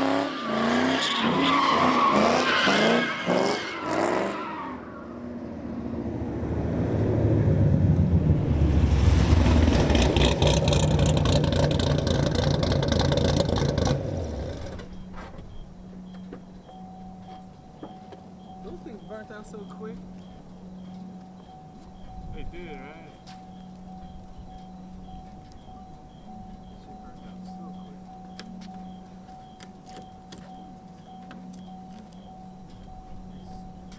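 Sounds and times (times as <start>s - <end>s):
tires squealing: 0.0s - 5.4s
car engine revving: 0.0s - 15.6s.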